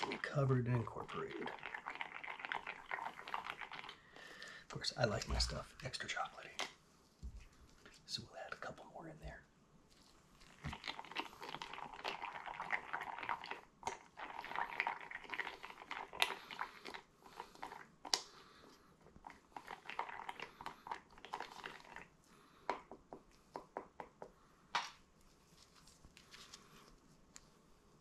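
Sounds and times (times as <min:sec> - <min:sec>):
stir stick scraping plastic cup: 0:10.5 - 0:22.1.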